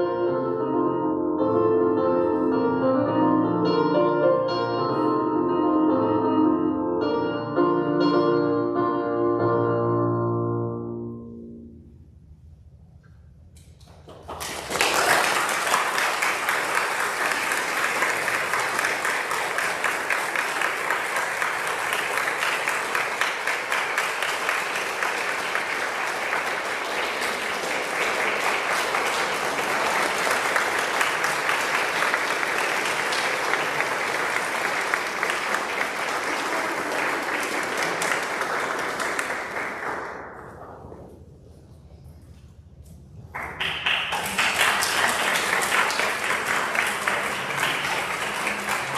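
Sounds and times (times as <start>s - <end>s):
music: 0.0s - 12.1s
audience applauding: 13.8s - 40.7s, 43.4s - 48.9s.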